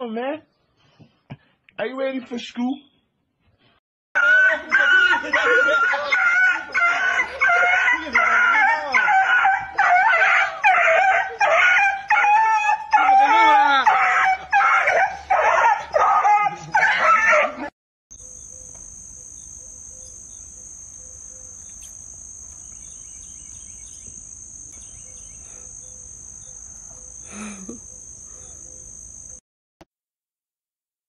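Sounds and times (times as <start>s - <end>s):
dog howling and yelping: 4.2s - 17.7s
high-pitched insect drone: 18.1s - 29.4s.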